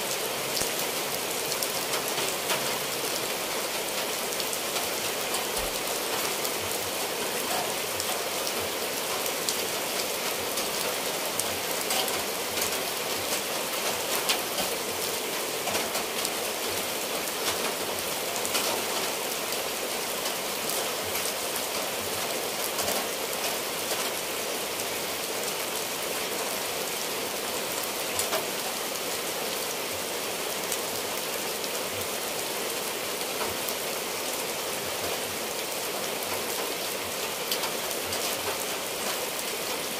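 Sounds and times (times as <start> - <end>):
rain on roof tiles: 0.0 - 39.9
water dripping from eaves: 0.1 - 26.0.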